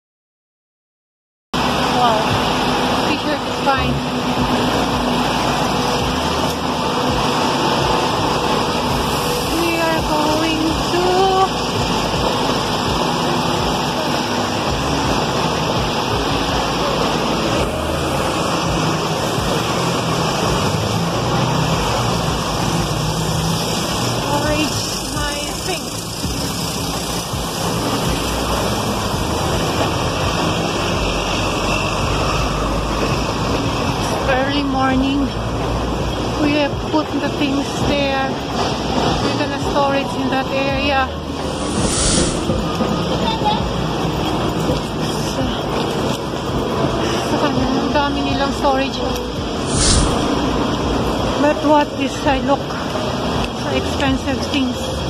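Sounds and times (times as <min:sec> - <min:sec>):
street traffic noise: 0:01.6 - 0:55.0
low rumble: 0:41.1 - 0:43.4, 0:49.3 - 0:51.4.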